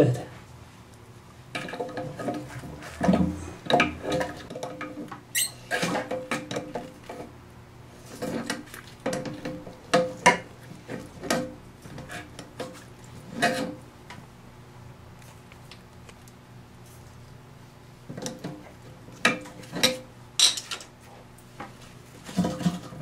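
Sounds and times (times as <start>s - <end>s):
short squeak: 5.3s - 5.7s.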